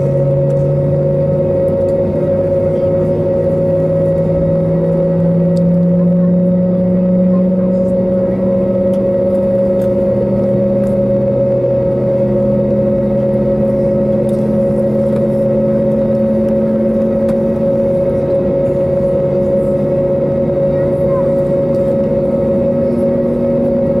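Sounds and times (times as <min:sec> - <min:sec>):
aircraft cabin drone: 0:00.0 - 0:24.0.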